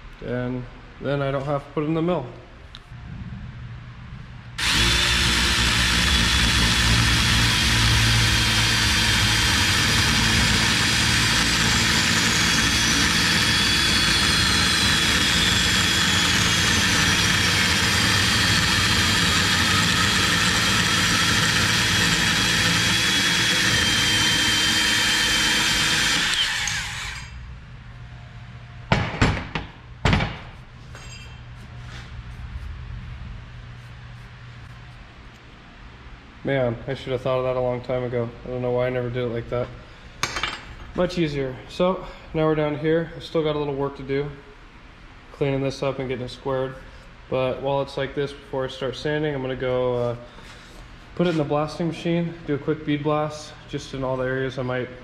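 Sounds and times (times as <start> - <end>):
band saw cutting metal: 4.6 - 27.4.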